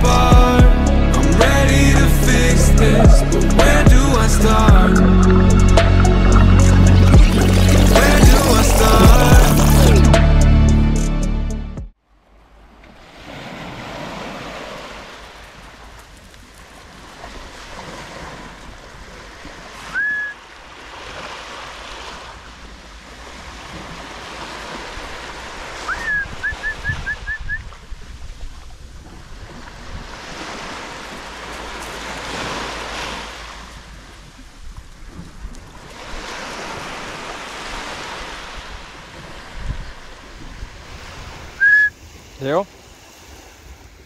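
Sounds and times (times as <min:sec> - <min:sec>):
sea waves washing onto shore: 0:03.6 - 0:10.0, 0:12.7 - 0:44.0
wind buffeting microphone: 0:23.3 - 0:32.5, 0:33.6 - 0:42.3.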